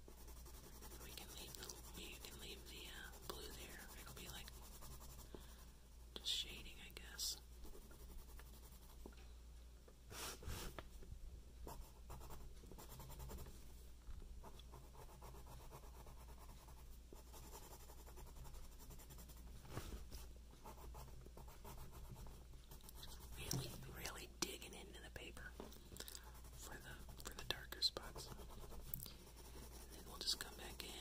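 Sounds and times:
pen scratching on paper: 0.0 - 5.3, 11.7 - 13.5, 14.4 - 19.4, 20.6 - 24.3, 26.2 - 31.0.

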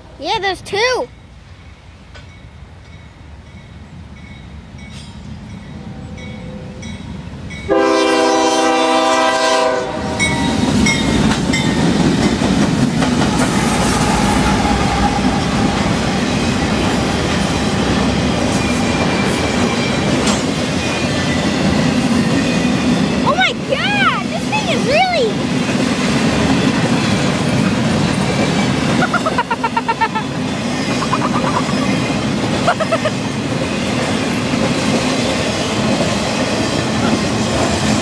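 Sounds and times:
diesel locomotive engine rumble: 1.5 - 38.0
train horn blast: 7.7 - 10.6.

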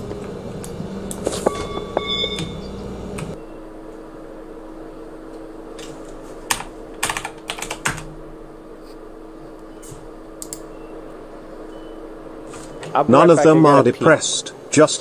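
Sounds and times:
steady low hum: 0.0 - 15.0
keyboard keys clicking: 6.5 - 8.0.

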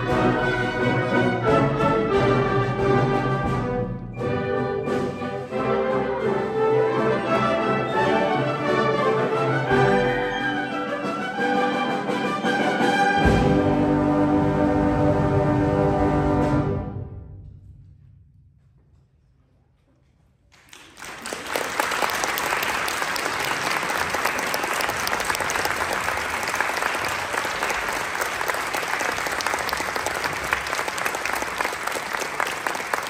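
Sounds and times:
audience applause: 20.5 - 33.0.

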